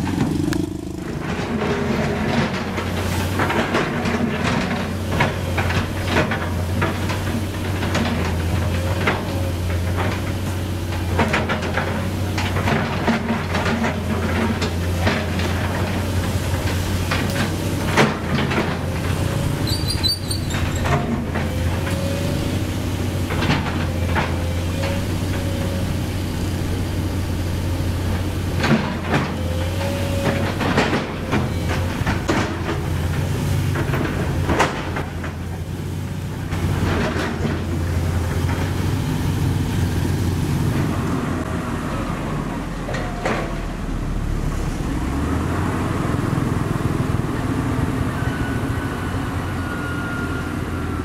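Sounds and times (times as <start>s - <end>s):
bucket scraping asphalt: 0.0s - 34.5s
excavator diesel engine running: 0.0s - 51.0s
short squeals: 19.5s - 21.1s.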